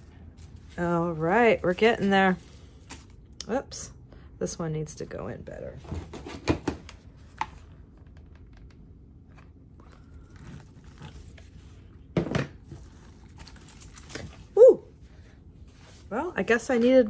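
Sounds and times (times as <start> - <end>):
rustling of craft pieces: 0.0 - 3.2.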